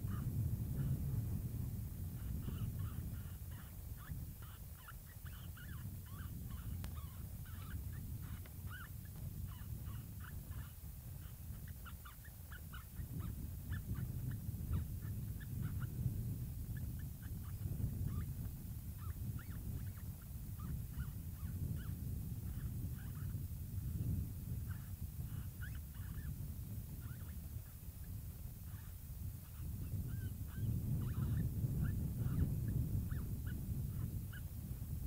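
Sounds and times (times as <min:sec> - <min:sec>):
animal yipping and chirping: 0:00.0 - 0:00.9, 0:02.2 - 0:16.0, 0:16.8 - 0:18.4, 0:19.0 - 0:23.4, 0:24.7 - 0:26.3, 0:27.0 - 0:27.4, 0:28.7 - 0:34.5
steady low rumble: 0:00.0 - 0:04.6.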